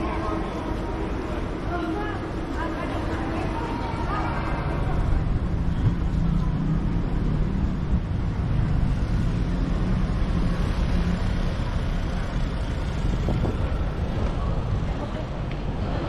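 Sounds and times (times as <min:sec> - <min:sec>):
low rumble of street traffic: 0:00.0 - 0:16.0
wind buffeting microphone: 0:11.9 - 0:16.0.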